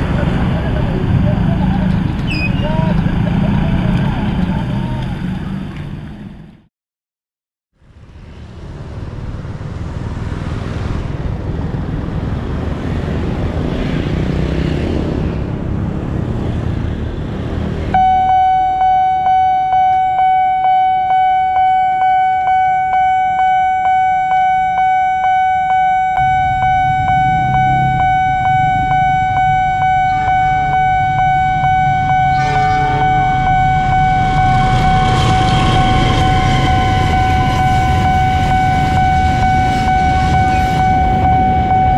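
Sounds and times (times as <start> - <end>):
cars and motorcycles passing: 0.0 - 6.6, 7.8 - 41.9
diesel locomotive rumble: 0.0 - 6.6, 15.2 - 41.9
level crossing warning bell: 18.0 - 41.9
train horn: 32.2 - 41.0.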